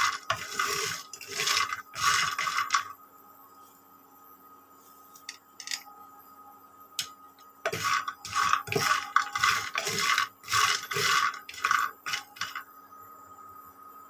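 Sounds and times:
wooden spatula scraping dry pan: 0.0 - 2.9, 7.7 - 12.6.

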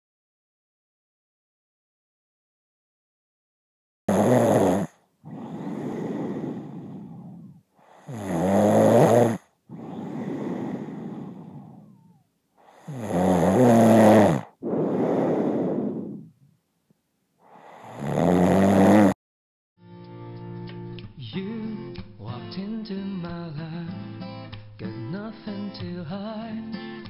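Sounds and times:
person snoring: 4.1 - 16.4, 17.4 - 19.2.

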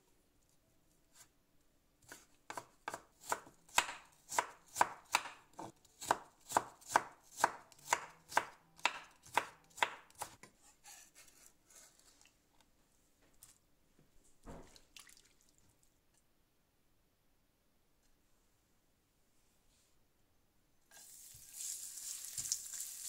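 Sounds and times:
knife chopping on wooden board: 2.0 - 11.4.

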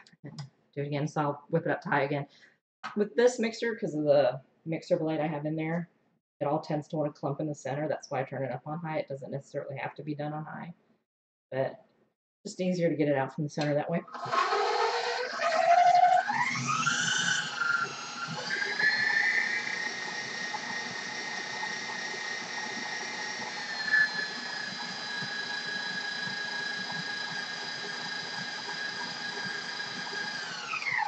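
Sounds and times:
stand mixer motor whine: 14.1 - 31.0.

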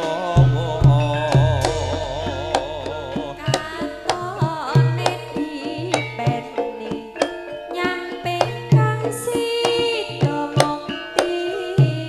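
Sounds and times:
low drum strokes: 0.0 - 5.1
gamelan music: 0.0 - 9.5
woman singing: 0.0 - 12.0
sharp struck hits: 0.4 - 4.8.

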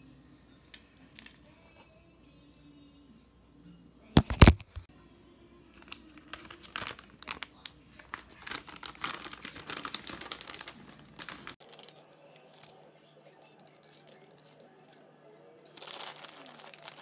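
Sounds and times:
plastic bag crinkling: 5.8 - 12.8, 13.6 - 15.0, 15.7 - 17.0.

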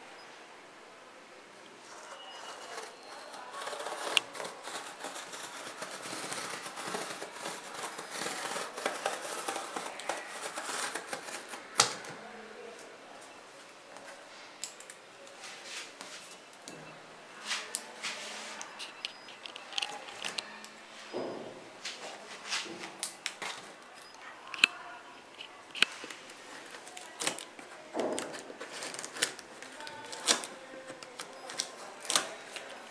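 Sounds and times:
scissors cutting packing tape: 2.5 - 12.1, 24.5 - 32.8.

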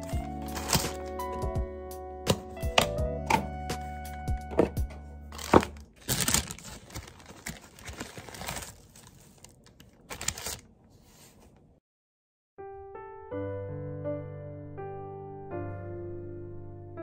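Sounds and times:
baking paper rustling and crinkling: 0.0 - 1.2, 5.3 - 11.6.

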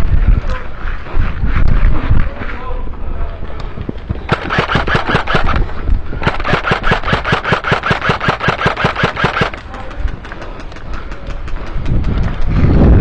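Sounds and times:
airsoft rifle automatic fire: 4.3 - 9.9.

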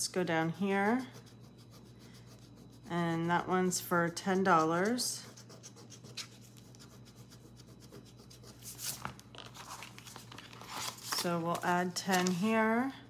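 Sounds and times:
fingernail scratching paper card: 0.5 - 9.0
paper rustling: 8.6 - 12.5.

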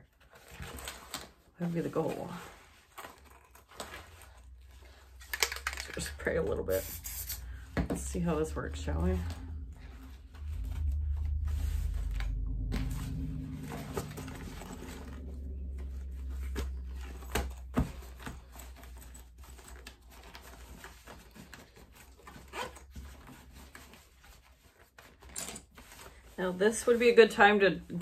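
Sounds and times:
low rumble: 6.0 - 20.2.

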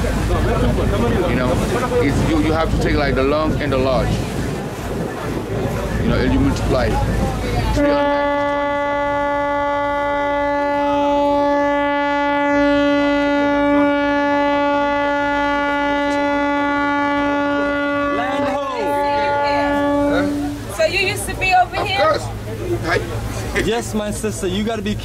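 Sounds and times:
voices: 0.0 - 25.0
ferry horn blast: 7.7 - 21.8.

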